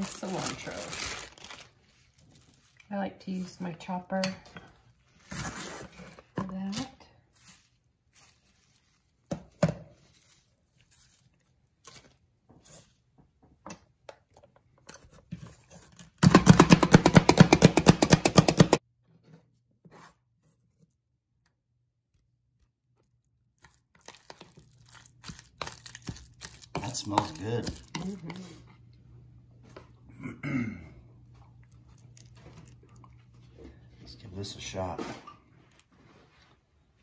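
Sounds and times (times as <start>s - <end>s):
food chopper rattling: 16.2s - 18.8s.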